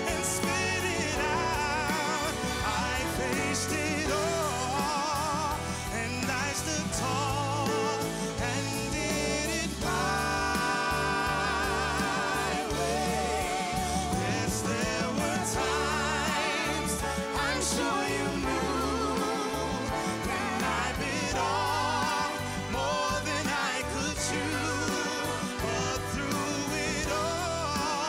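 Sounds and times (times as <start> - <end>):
band accompaniment: 0.0 - 28.0
person singing with vibrato: 0.0 - 28.0.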